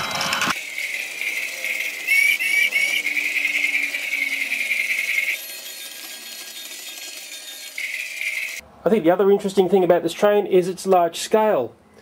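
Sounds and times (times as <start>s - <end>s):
toy train rattling on track: 0.0s - 8.6s.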